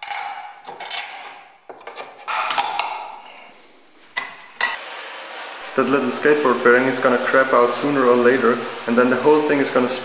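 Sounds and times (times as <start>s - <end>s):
metal scraping: 0.0s - 4.8s.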